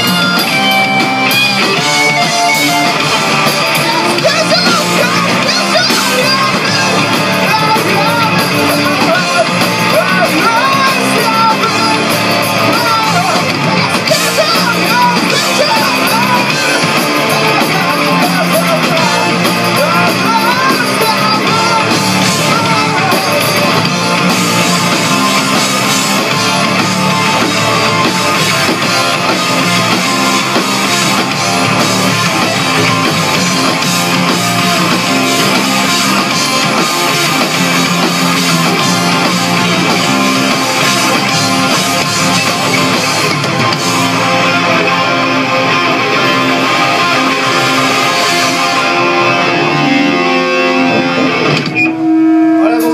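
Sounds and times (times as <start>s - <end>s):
person singing: 0.0s - 25.5s
live rock band playing: 0.0s - 52.9s.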